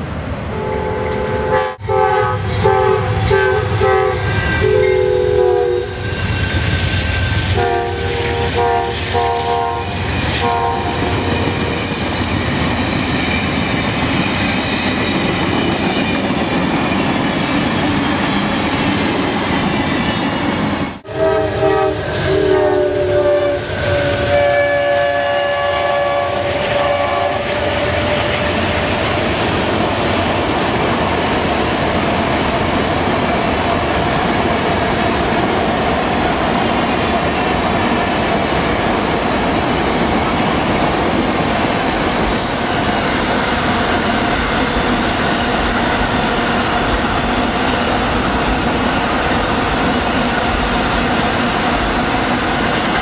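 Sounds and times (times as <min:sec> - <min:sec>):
train rumble and wheel clatter: 0:00.0 - 0:53.0
train horn blasts: 0:00.5 - 0:06.1, 0:07.5 - 0:11.6, 0:21.0 - 0:28.7.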